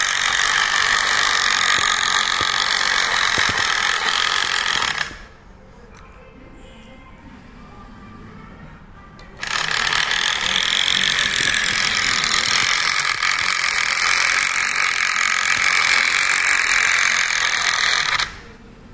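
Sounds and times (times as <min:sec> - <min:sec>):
wooden gears whirring and clicking: 0:00.0 - 0:05.3, 0:09.4 - 0:18.4.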